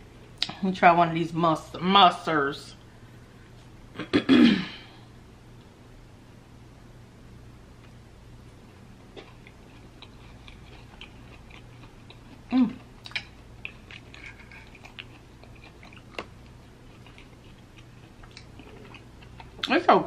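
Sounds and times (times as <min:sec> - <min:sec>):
chewing mussel: 0:09.1 - 0:19.8.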